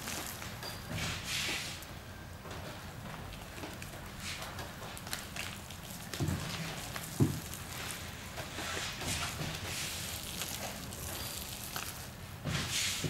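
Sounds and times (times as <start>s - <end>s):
wet sticky crackling and rustling: 3.2s - 13.0s.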